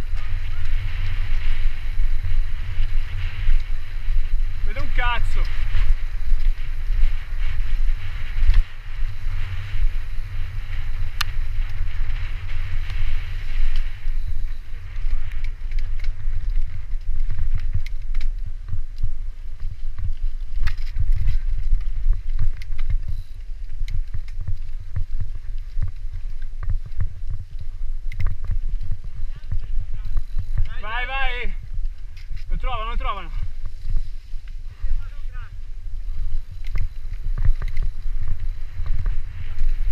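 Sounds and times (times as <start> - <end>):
bike clicks and rattles: 0.0 - 31.0, 31.6 - 32.6, 33.3 - 39.9
wind buffeting microphone: 0.0 - 39.9
tyres hissing over dry leaves: 4.6 - 6.8.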